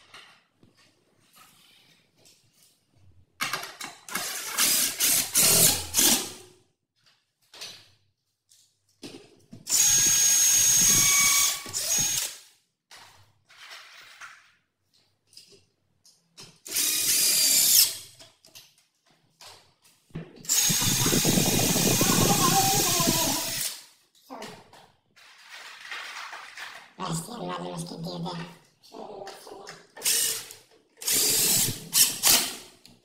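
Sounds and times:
cordless drill driving screws: 4.1s - 6.3s, 9.7s - 12.4s, 16.7s - 18.0s, 20.5s - 23.8s, 30.0s - 32.6s.

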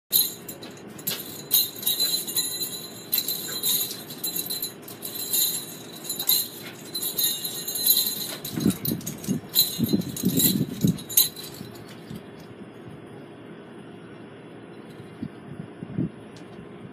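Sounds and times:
small bells jingling on a cord: 0.1s - 12.2s.

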